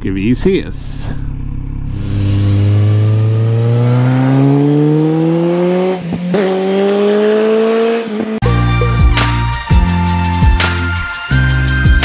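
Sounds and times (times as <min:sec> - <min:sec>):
motorcycle engine accelerating: 0:00.0 - 0:08.4
music: 0:08.4 - 0:12.0.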